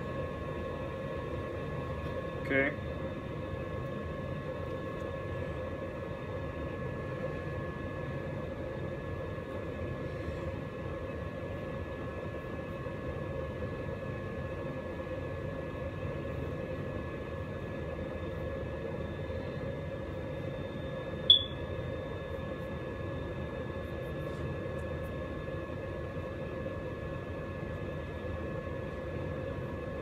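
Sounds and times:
steady hum: 0:16.1 - 0:22.4
high whining tones: 0:21.3 - 0:21.6.

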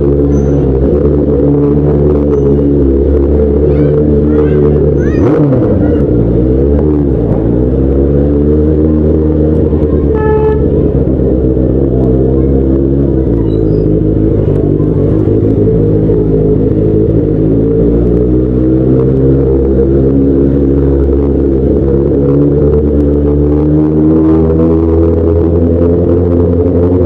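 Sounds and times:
motorcycle engine running: 0:00.0 - 0:27.0
horn toot: 0:10.1 - 0:10.9.

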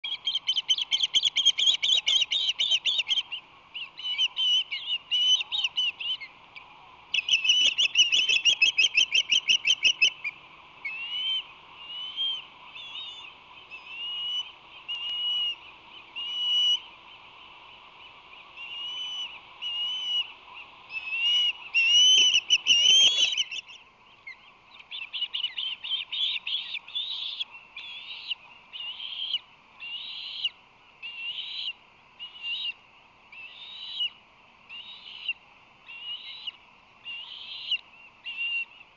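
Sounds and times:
osprey chirps: 0:20.9 - 0:29.4.

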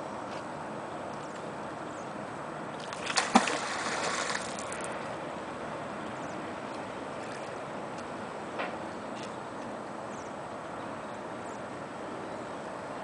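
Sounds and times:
outdoor background hiss: 0:00.0 - 0:13.0
splash in river: 0:02.8 - 0:05.0.

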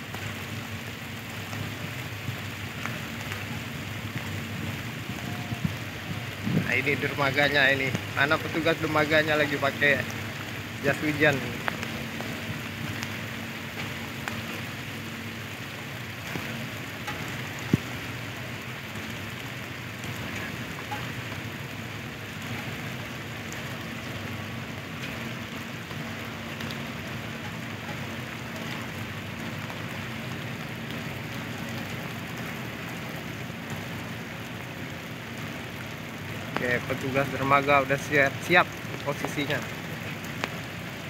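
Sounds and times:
heavy rain falling: 0:00.0 - 0:41.0.

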